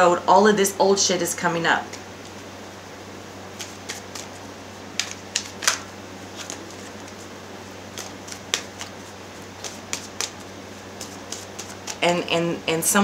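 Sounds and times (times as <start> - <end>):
cards being shuffled: 3.5 - 12.0.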